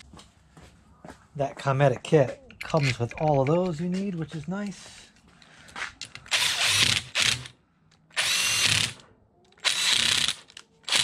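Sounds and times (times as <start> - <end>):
cordless drill whining: 6.3 - 7.5, 8.1 - 9.0, 9.6 - 11.0.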